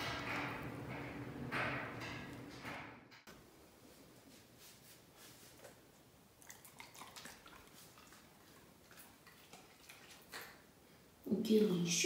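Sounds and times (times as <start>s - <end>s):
dog chewing a treat: 6.4s - 10.6s.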